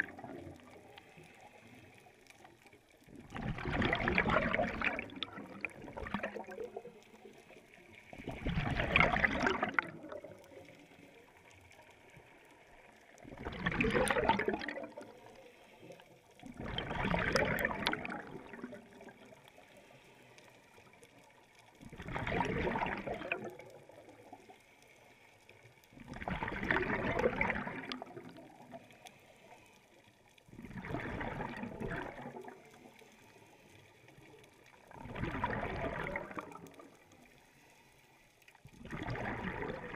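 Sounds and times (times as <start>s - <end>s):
underwater bubbling exhalation: 0.0s - 0.9s, 3.0s - 7.4s, 8.1s - 10.8s, 13.0s - 15.2s, 16.4s - 19.3s, 21.8s - 24.3s, 26.0s - 28.8s, 30.5s - 32.8s, 34.9s - 37.0s, 38.7s - 39.9s.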